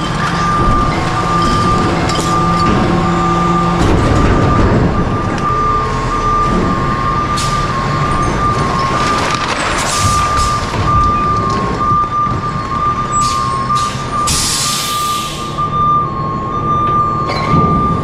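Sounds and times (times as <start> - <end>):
garbage truck engine droning: 0.0 - 18.0
high warning beep: 10.0 - 18.0.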